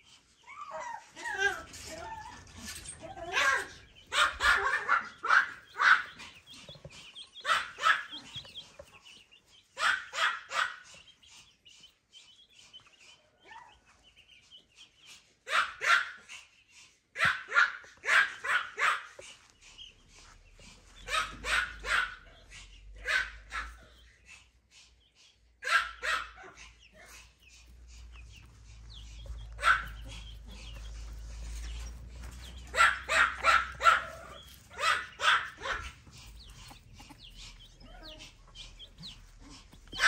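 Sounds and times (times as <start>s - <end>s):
dog barking: 3.2s - 6.3s, 7.4s - 8.5s, 9.8s - 10.9s, 15.5s - 16.3s, 17.2s - 19.2s, 21.0s - 24.0s, 25.6s - 27.2s, 28.4s - 37.2s.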